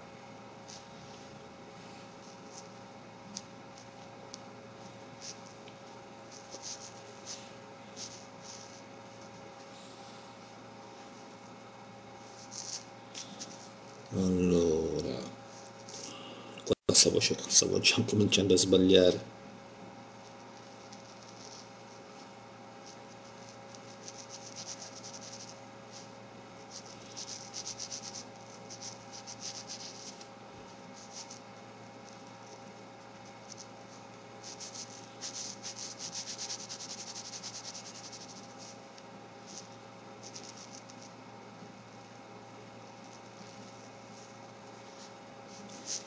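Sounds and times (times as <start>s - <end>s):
faint steady hum: 0.0s - 46.0s
pen tip scratching paper: 6.3s - 9.4s, 22.8s - 30.3s, 34.4s - 38.8s.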